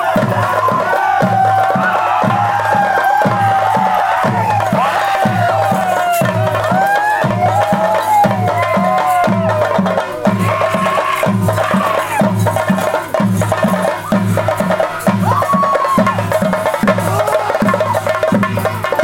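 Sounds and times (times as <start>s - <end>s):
steady drum strokes: 0.0s - 19.0s.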